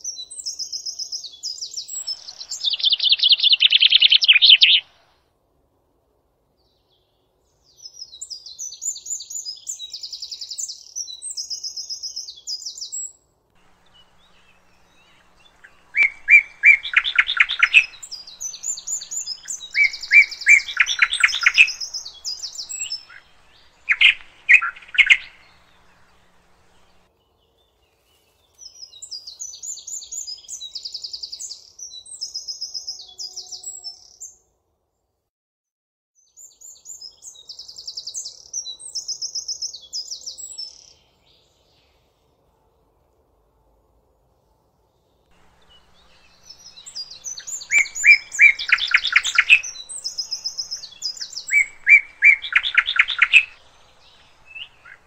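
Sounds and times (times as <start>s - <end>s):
bird high trilled song: 0.0s - 5.1s, 7.7s - 27.1s, 45.4s - 55.0s
bird stuttering rattling song: 0.0s - 5.1s, 13.6s - 27.1s, 45.4s - 55.0s.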